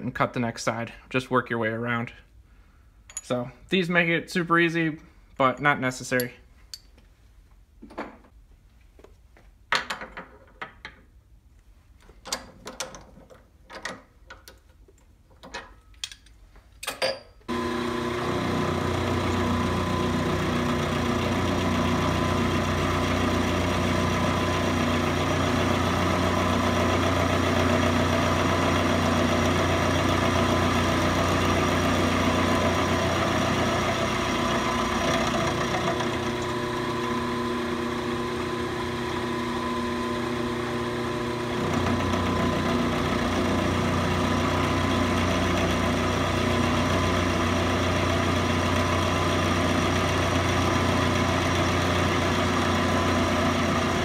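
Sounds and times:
milling machine cutting steel: 17.5 - 54.0.

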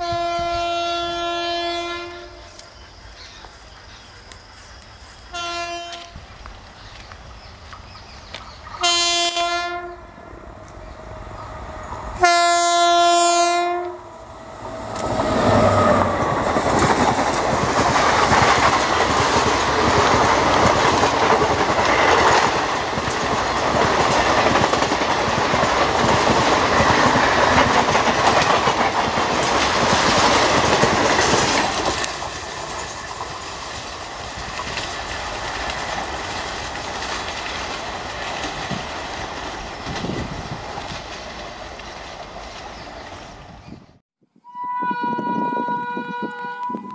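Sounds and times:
train horn: 0.0 - 2.7, 5.3 - 6.2, 8.8 - 10.4, 12.2 - 14.2, 44.4 - 46.9
train rumble: 0.0 - 44.0
train wheels clattering on track: 13.8 - 43.8.

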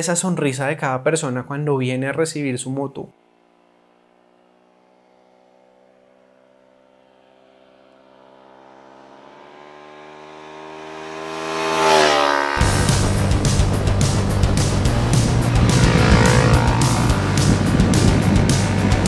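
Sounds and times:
motorcycle engine passing by: 3.1 - 19.0
loud music: 12.6 - 19.0.

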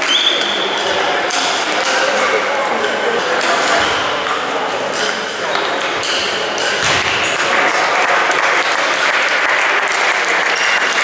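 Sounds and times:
spectators applauding: 7.2 - 11.0.

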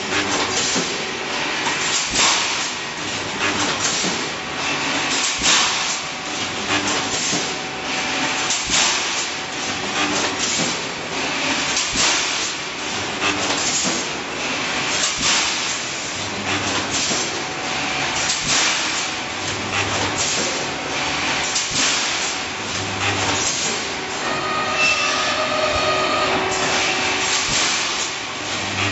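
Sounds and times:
welding machine clanks: 0.0 - 28.9
low machine hum: 24.0 - 28.9.

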